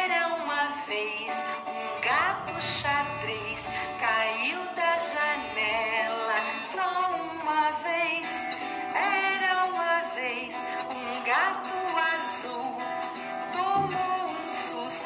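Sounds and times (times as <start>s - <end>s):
woman singing children's song: 0.0s - 15.0s
instrumental backing track: 12.8s - 14.8s.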